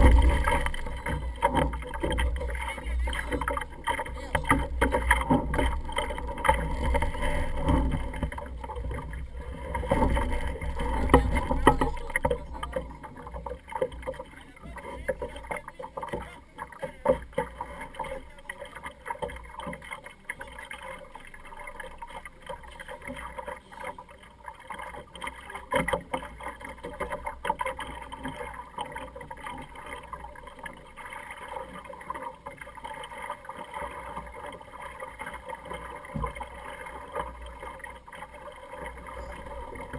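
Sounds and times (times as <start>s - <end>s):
heavy low rumble: 0.0s - 12.7s
water sloshing against hull: 0.0s - 39.9s.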